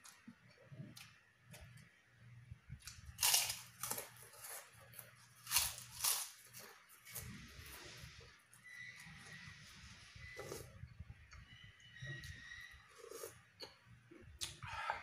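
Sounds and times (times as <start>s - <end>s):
cracker crunching: 2.8s - 7.8s.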